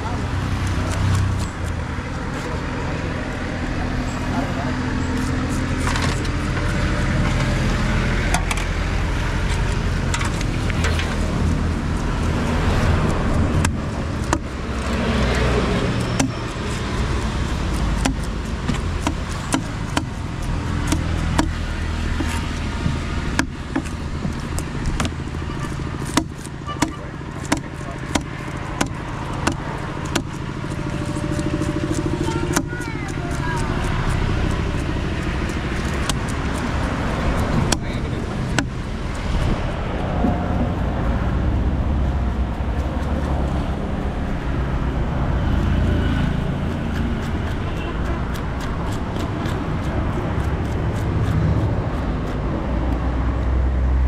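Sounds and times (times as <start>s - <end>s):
market din: 0.0s - 54.0s
knife chopping on cutting block: 26.0s - 30.4s.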